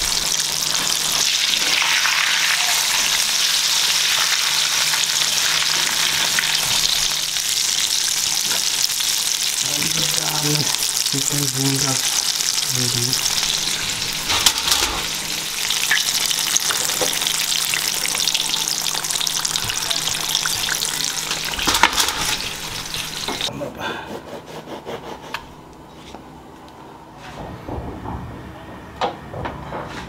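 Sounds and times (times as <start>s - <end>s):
chicken deep-frying in oil: 0.0s - 23.5s.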